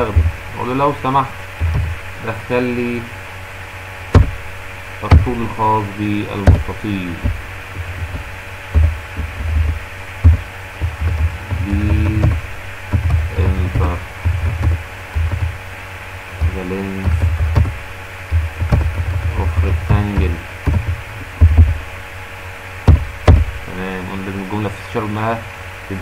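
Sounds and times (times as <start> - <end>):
thumping on microphone: 0.0 - 0.6, 1.5 - 2.3, 4.1 - 5.6, 6.3 - 22.0, 22.8 - 23.7
man murmuring: 11.5 - 12.4.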